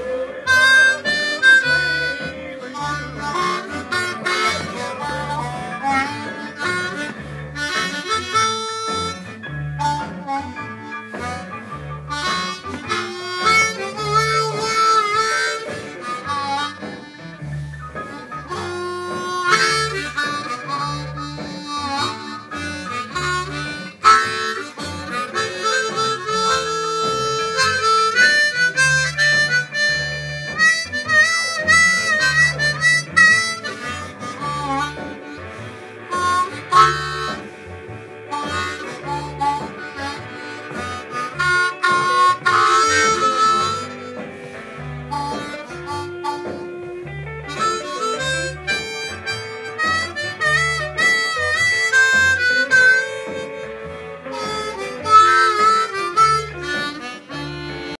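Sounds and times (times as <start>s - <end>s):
blues band with bass line: 0.0s - 57.9s
blues harmonica melody: 0.0s - 57.9s.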